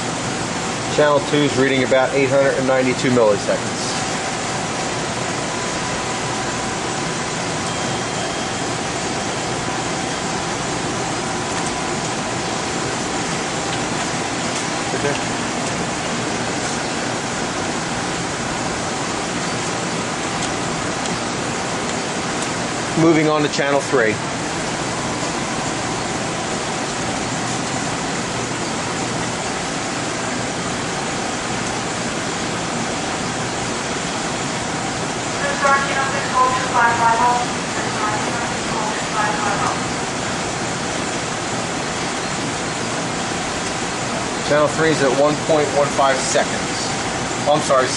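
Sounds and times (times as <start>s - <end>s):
cooling fans rushing: 0.0s - 47.9s
faint high whine: 5.5s - 13.3s, 35.3s - 40.1s.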